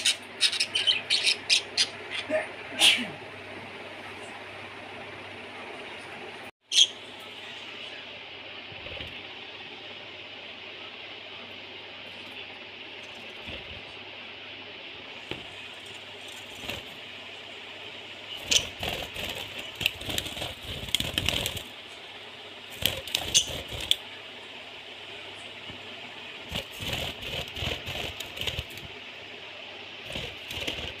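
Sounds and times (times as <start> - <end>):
budgerigars chirping: 0.0 - 2.3.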